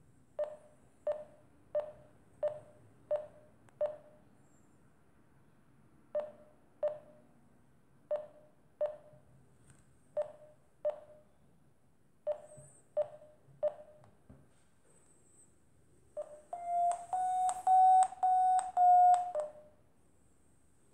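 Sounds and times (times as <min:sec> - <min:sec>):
phone app short beeps: 0:16.2 - 0:19.6.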